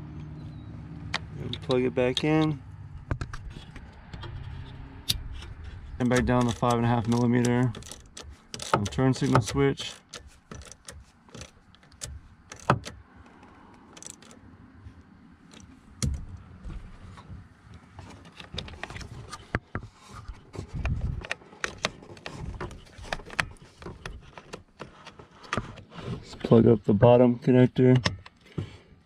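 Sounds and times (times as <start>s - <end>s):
plastic connectors clicking: 5.1s - 12.9s.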